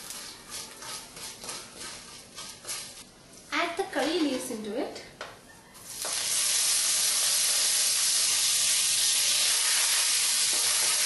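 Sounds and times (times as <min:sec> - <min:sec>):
leaves sizzling in hot oil: 0:05.8 - 0:11.0.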